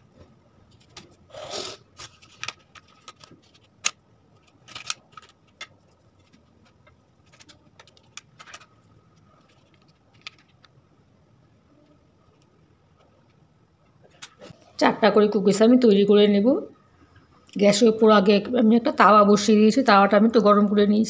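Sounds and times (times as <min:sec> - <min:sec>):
paper rustling: 0:02.0 - 0:10.7.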